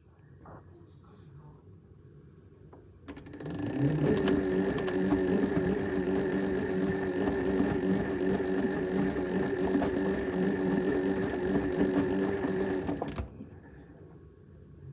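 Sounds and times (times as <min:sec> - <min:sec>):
washing machine motor humming: 0:03.0 - 0:14.0.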